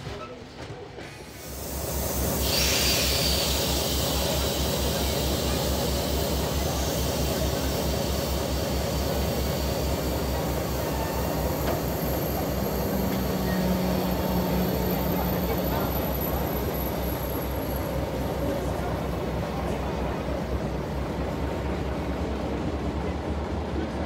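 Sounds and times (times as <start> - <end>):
hiss of fans and air: 1.2 - 10.1
diesel locomotive idling: 1.3 - 24.0.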